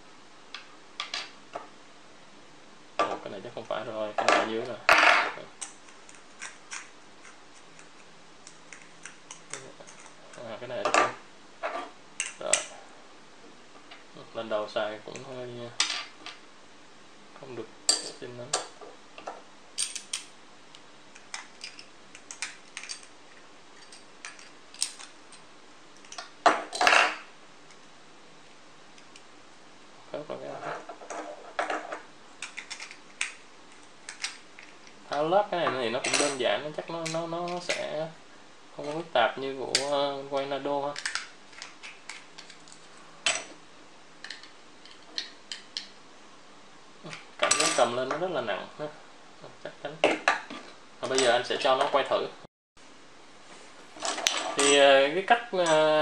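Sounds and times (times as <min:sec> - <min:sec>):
parts clattering: 0:30.6 - 0:37.9, 0:47.1 - 0:48.2, 0:54.0 - 0:55.0.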